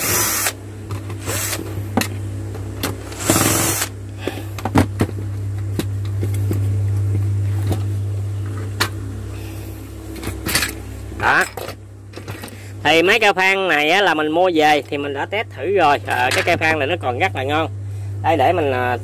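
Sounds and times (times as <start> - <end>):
cordless drill spinning: 0.0 - 0.6, 1.2 - 1.7, 3.2 - 3.9
steady low hum: 0.0 - 19.0.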